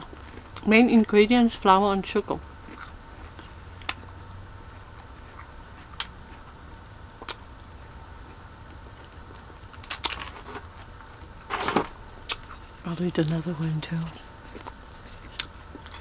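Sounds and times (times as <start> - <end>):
chewing crunchy waffle cone: 2.6 - 6.6, 7.2 - 11.3, 12.2 - 16.0.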